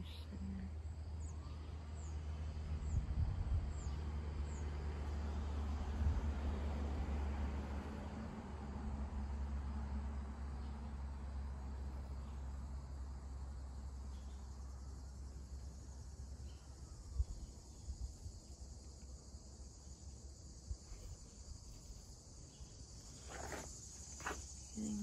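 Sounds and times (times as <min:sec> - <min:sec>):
high-pitched insect chorus: 0:10.6 - 0:25.0.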